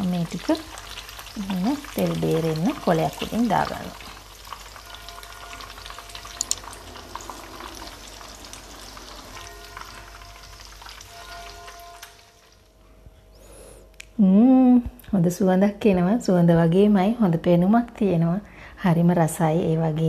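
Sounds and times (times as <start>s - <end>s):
bread sizzling in hot oil: 0.0s - 12.7s.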